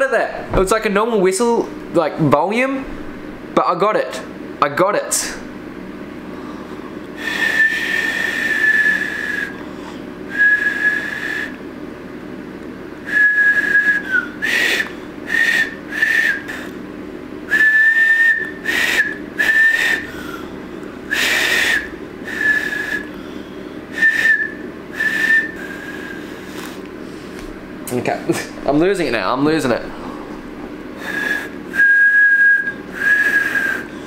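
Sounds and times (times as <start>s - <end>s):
breathy air noise: 5.2s - 11.6s, 13.0s - 34.0s
two-finger whistle blasts: 7.3s - 9.6s, 10.4s - 11.6s, 13.1s - 16.7s, 17.5s - 20.1s, 21.1s - 23.1s, 24.0s - 26.3s, 31.0s - 33.9s.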